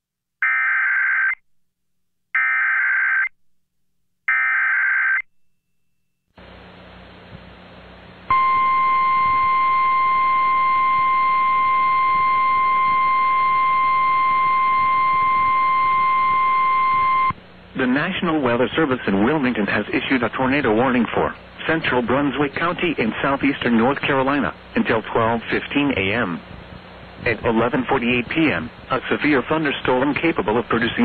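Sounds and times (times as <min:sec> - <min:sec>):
faint radio hiss: 0:06.4 - 0:31.0
steady warning alarm tone: 0:08.3 - 0:17.4.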